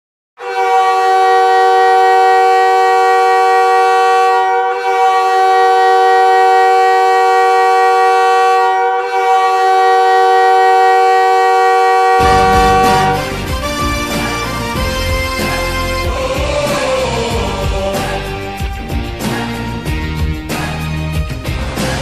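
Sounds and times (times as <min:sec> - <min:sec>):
arena goal horn blasts: 0:00.4 - 0:16.2.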